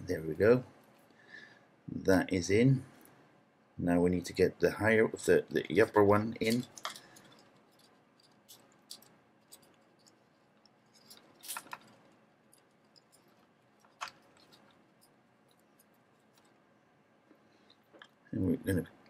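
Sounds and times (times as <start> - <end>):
plastic and metal parts clicking: 6.4 - 16.6.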